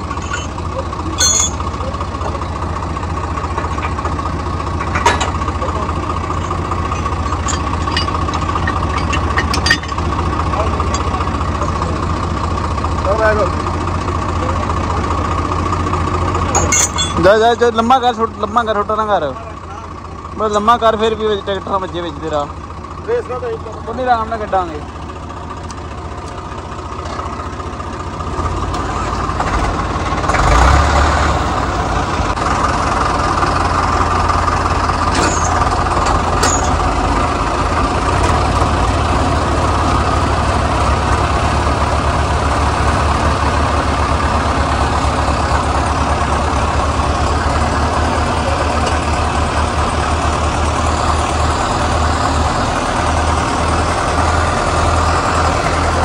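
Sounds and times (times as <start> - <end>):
diesel tractor engines under load: 0.0 - 56.0.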